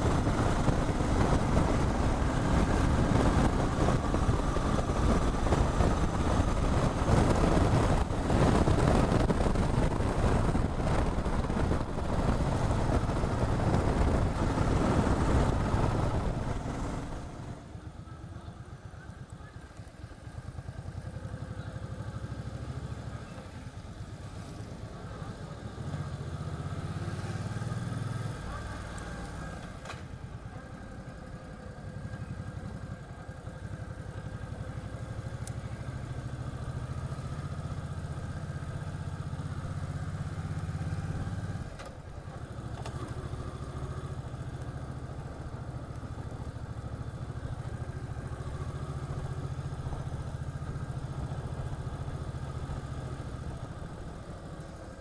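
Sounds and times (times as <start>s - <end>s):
wind noise: 0.0s - 17.6s
motorcycle engine: 0.0s - 55.0s.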